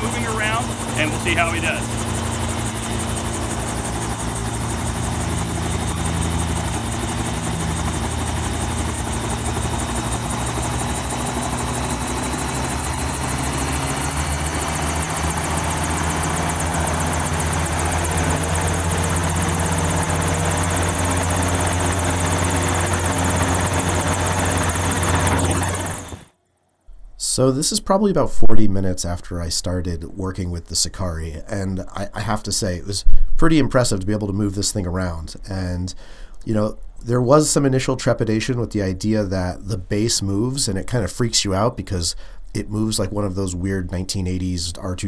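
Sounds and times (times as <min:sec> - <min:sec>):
helicopter rotor chopping: 0:00.0 - 0:26.3.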